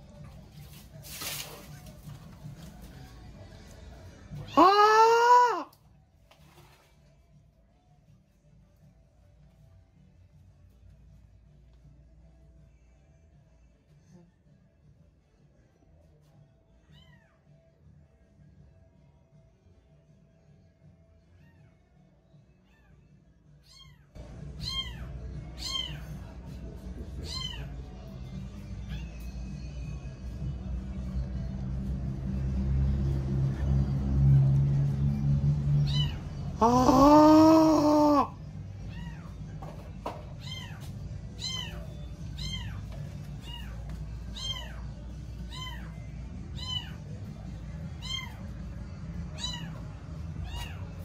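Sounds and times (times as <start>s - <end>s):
cat meowing: 4.5s - 5.7s, 23.6s - 26.2s, 27.3s - 27.8s, 35.9s - 39.3s, 49.4s - 49.8s
kitten meowing: 35.9s - 38.3s.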